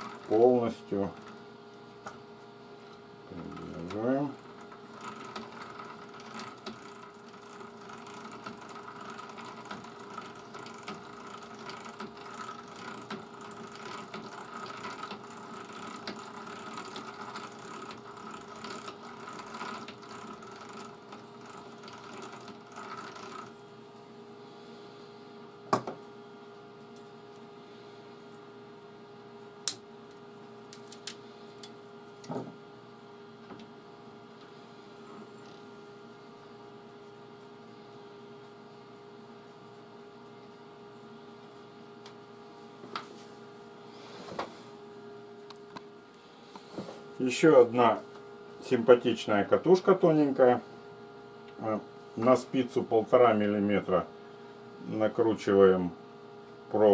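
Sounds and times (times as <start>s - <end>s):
small motor humming: 0.0s - 1.2s, 3.3s - 23.8s
rattly whirr of winding wire: 0.0s - 1.6s, 2.8s - 23.8s, 30.7s - 32.4s.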